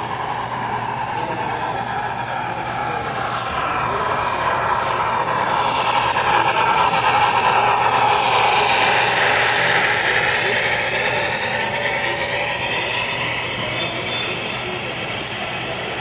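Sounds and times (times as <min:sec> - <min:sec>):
model train rumbling past: 0:00.0 - 0:16.0.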